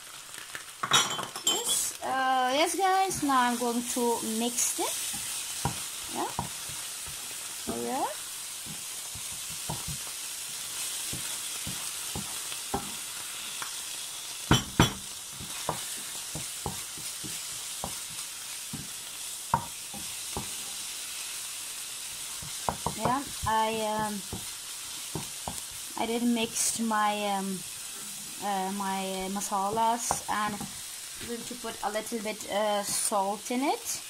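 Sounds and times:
sauce sizzling in frying pan: 0:00.0 - 0:34.0
spoon knocking on pan: 0:05.1 - 0:07.8, 0:08.6 - 0:10.1, 0:11.0 - 0:13.0, 0:14.5 - 0:20.6, 0:22.4 - 0:24.5, 0:25.1 - 0:25.7.

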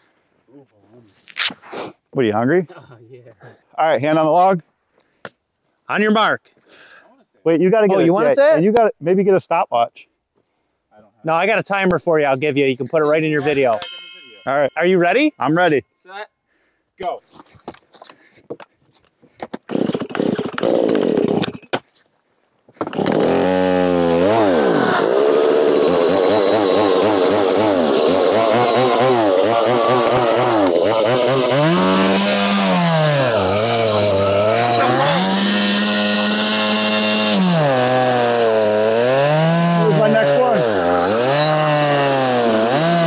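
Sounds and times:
chainsaw engine running: 0:19.7 - 0:21.5, 0:22.8 - 0:43.0.

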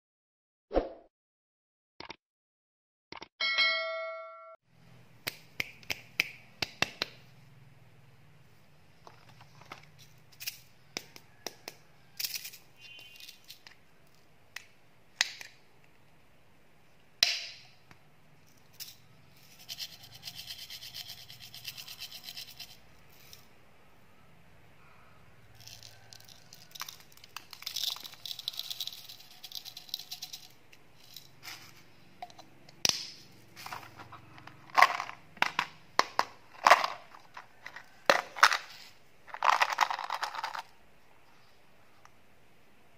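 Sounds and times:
plastic rattling and scraping: 0:09.0 - 0:10.5, 0:33.6 - 0:40.7
plastic containers tapping and clicking: 0:34.0 - 0:38.6.

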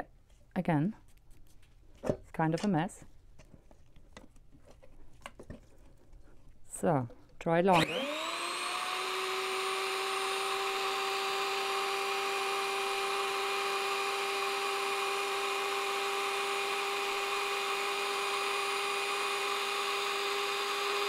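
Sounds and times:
electric grinder running: 0:07.7 - 0:21.0.

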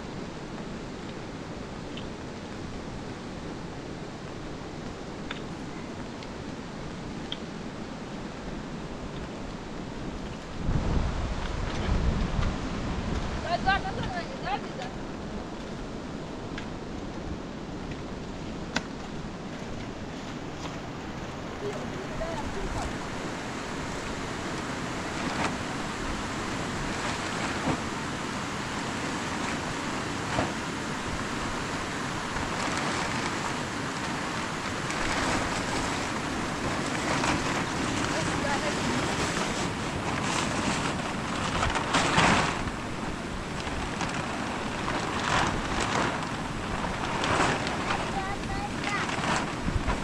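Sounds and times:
wind on microphone: 0:00.0 - 0:50.0
plastic tarpaulin rustling: 0:08.4 - 0:50.0
plastic sheet crackling: 0:17.9 - 0:28.0, 0:28.7 - 0:50.0.

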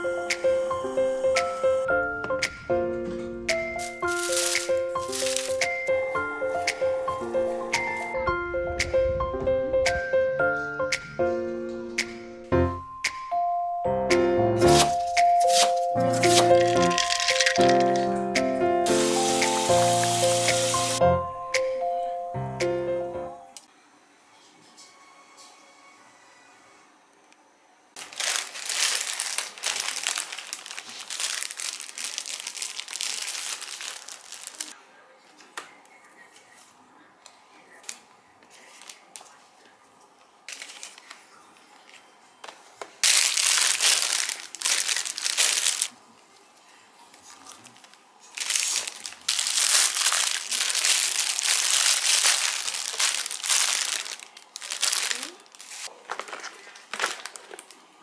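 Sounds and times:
plastic packaging crinkling: 0:03.8 - 0:06.0, 0:14.7 - 0:18.1, 0:28.0 - 0:34.8, 0:40.5 - 0:41.2, 0:43.0 - 0:46.0, 0:47.2 - 0:58.0.

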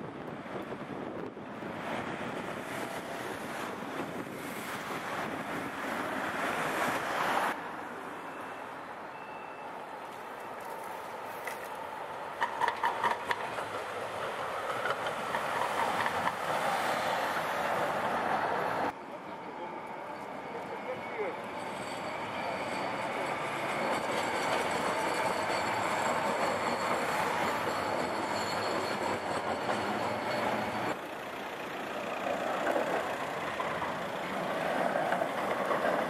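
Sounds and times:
street traffic: 0:00.0 - 0:36.0
tram running on rails: 0:00.0 - 0:36.0
sharp clacks: 0:12.4 - 0:13.8.

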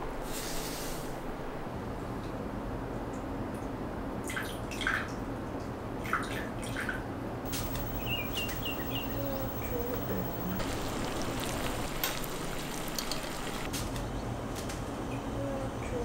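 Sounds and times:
low steady hum: 0:07.5 - 0:13.7
water trickling into a glass: 0:07.5 - 0:13.7.

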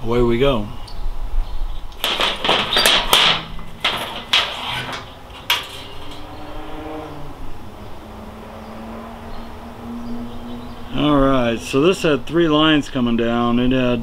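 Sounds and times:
metal and plastic parts clattering: 0:02.0 - 0:06.3.

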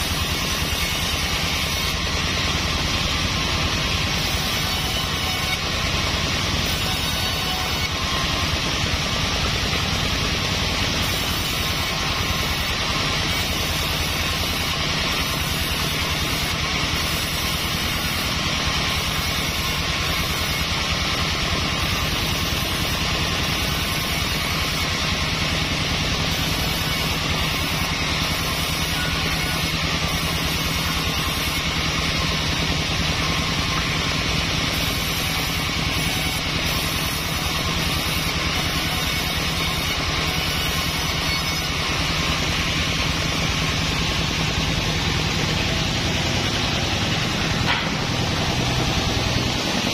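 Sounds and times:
band saw cutting wood: 0:00.0 - 0:49.9
low hum: 0:41.2 - 0:49.9.

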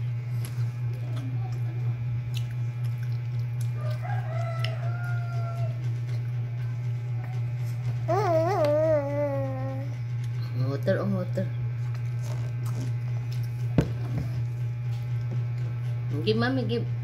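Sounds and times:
steady low hum: 0:00.0 - 0:17.0
rooster crowing: 0:03.7 - 0:06.0.

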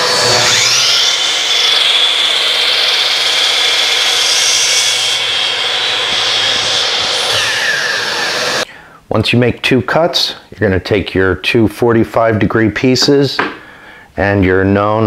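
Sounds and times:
miter saw motor whining: 0:00.0 - 0:08.7
saw blade cutting board: 0:00.0 - 0:08.7.

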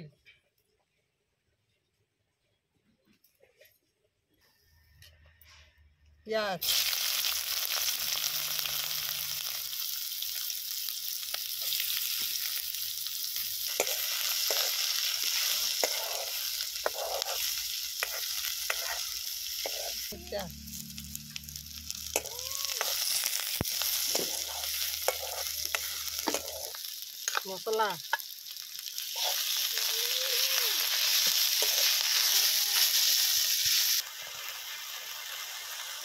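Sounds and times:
onions sizzling in hot oil: 0:06.6 - 0:36.0
steel spoon scraping pan: 0:13.6 - 0:27.5.

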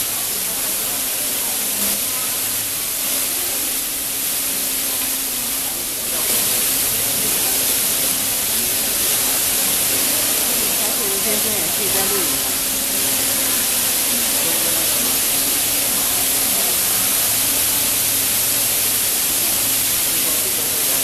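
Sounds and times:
heavy rainwater pouring and splashing: 0:00.0 - 0:21.0.

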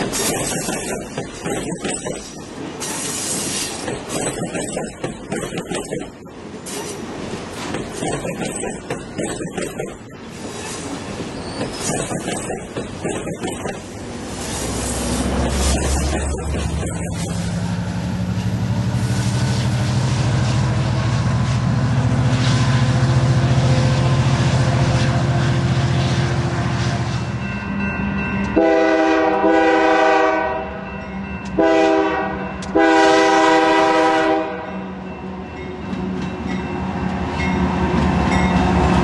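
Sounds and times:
diesel locomotive engine drone: 0:00.0 - 0:39.0
locomotive air horn blasts: 0:28.5 - 0:30.9, 0:31.6 - 0:34.8.

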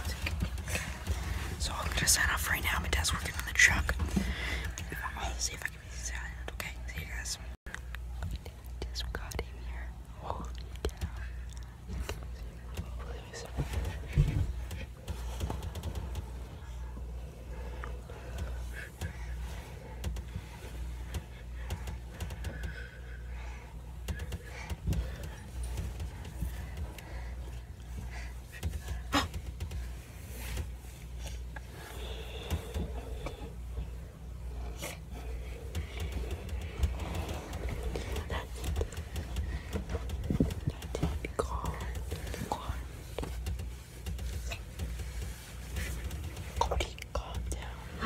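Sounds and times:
low steady rumble: 0:00.0 - 0:48.0
phone rustling against fabric: 0:23.9 - 0:48.0.

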